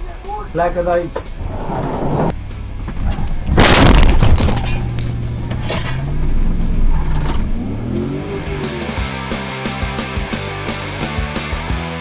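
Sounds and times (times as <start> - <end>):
crunching and clattering: 2.8 - 6.2.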